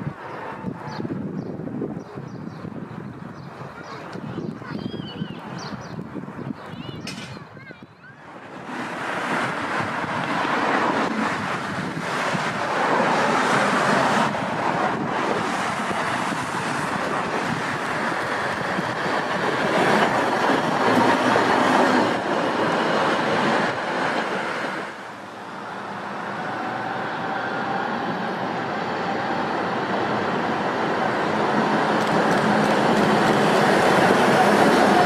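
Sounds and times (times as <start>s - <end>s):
tram wheels rumbling: 0.0s - 35.0s
knocks from tram track: 7.0s - 7.5s, 31.9s - 35.0s.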